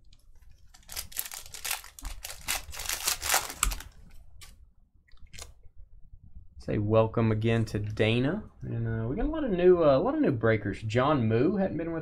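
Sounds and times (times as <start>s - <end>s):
card packs crinkling and clicking: 0.0s - 4.6s.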